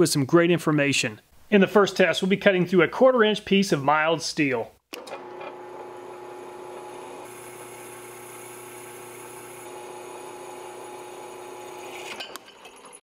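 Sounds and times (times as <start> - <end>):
drill press humming: 4.9 - 13.0
drill bit cutting steel hiss: 7.2 - 12.4.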